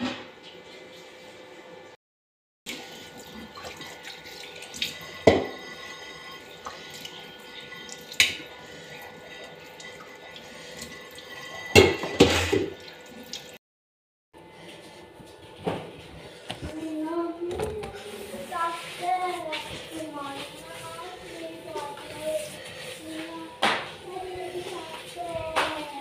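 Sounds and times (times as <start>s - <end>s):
dishes clattering: 11.4s - 12.8s.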